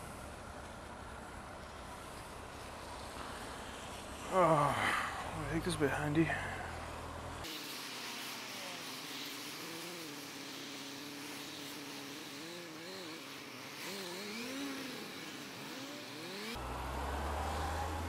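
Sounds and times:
tyres on wet road: 0.0s - 18.0s
wind hiss: 0.0s - 18.0s
motorcycle engine running: 8.8s - 17.3s.

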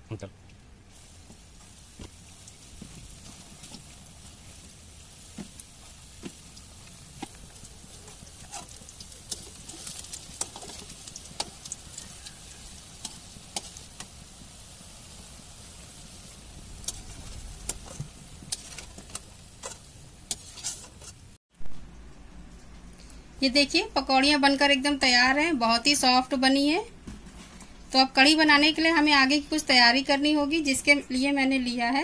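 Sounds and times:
fritters sizzling in hot oil: 0.6s - 21.4s
metal spatula in pan: 2.0s - 14.7s, 16.0s - 21.4s.

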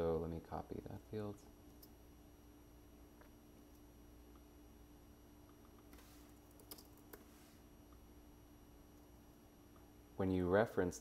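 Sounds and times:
computer keyboard keystroke: 6.5s - 7.2s.

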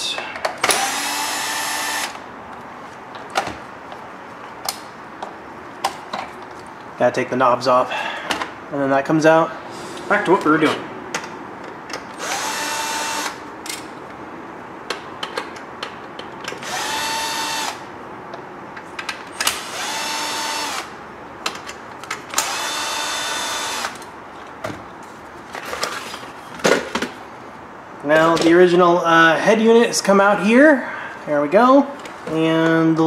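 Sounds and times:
cordless drill whining: 0.6s - 2.2s, 12.2s - 13.4s, 16.6s - 17.8s, 19.6s - 20.9s, 22.4s - 24.0s.

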